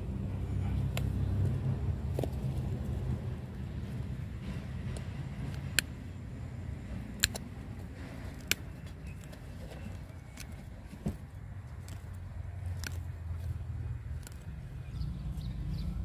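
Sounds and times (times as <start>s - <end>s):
low steady rumble: 0.0s - 16.0s
pruning tool snipping roots: 4.5s - 6.0s, 7.0s - 11.0s, 11.6s - 14.9s.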